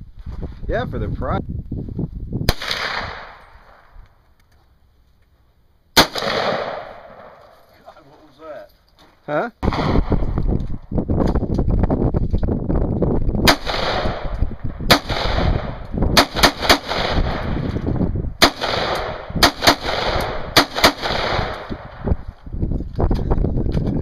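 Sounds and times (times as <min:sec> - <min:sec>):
rifle shots with ringing echo: 0:02.5 - 0:03.9, 0:06.0 - 0:07.6, 0:09.6 - 0:10.3, 0:13.4 - 0:17.8, 0:18.4 - 0:22.0.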